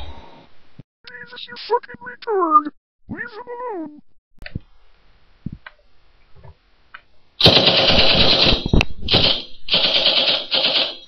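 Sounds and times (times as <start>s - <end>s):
automatic rifle fire: 7.4s - 11.0s.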